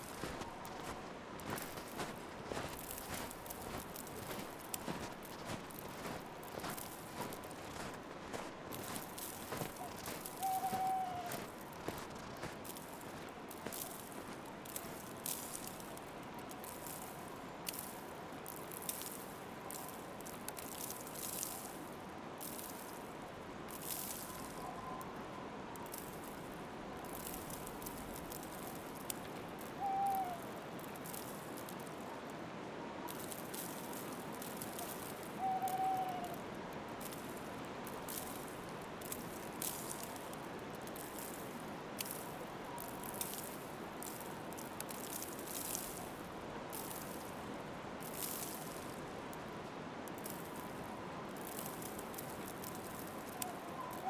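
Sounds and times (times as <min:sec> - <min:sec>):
footsteps crunching in snow: 0:00.0 - 0:23.1, 0:33.1 - 0:49.0
soft outdoor hiss: 0:00.0 - 0:54.0.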